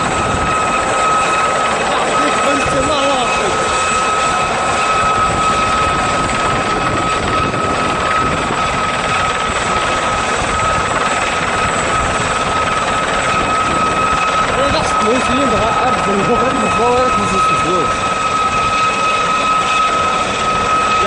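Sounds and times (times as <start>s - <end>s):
helicopter rotor and engine: 0.0s - 21.0s.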